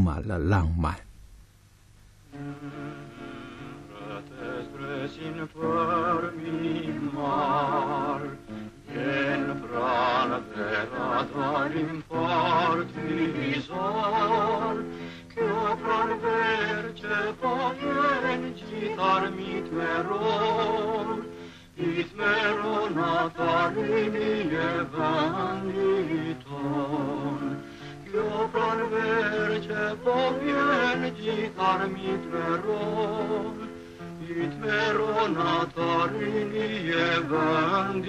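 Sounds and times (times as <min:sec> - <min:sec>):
acoustic guitar: 0:02.0 - 0:38.0
man singing: 0:02.5 - 0:38.0.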